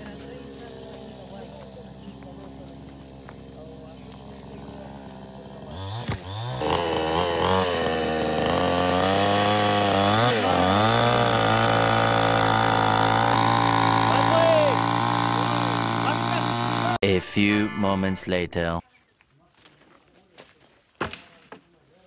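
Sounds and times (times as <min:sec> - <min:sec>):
chainsaw revving: 0:00.0 - 0:17.0.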